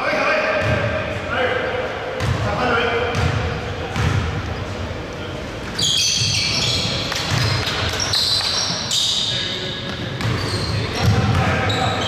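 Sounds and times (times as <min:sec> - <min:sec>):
sneakers squeaking on floor: 0:05.7 - 0:12.0.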